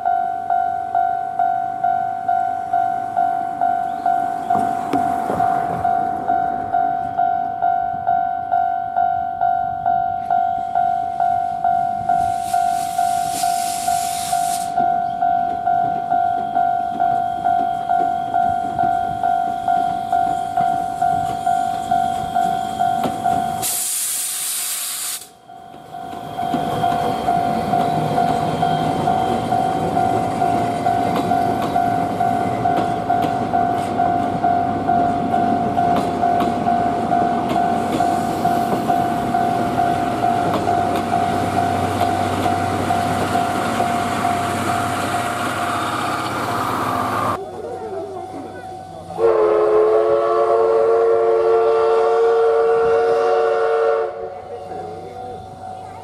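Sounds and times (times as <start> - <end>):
level-crossing warning bell: 0.0 - 24.0, 25.3 - 52.0, 52.6 - 56.0
train coaches rumbling on rails: 0.0 - 56.0
steam hissing: 12.2 - 14.8, 23.6 - 25.4.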